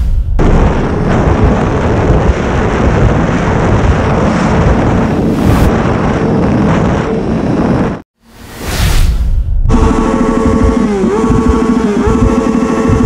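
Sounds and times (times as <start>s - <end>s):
wind buffeting microphone: 0.0s - 8.0s
motorcycle engine running: 9.7s - 13.0s.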